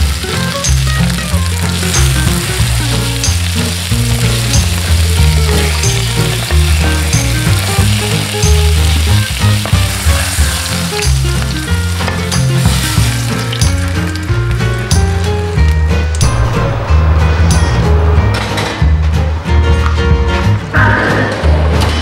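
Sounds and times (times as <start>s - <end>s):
meat sizzling in a frying pan: 0.0s - 14.8s
background music: 0.0s - 22.0s.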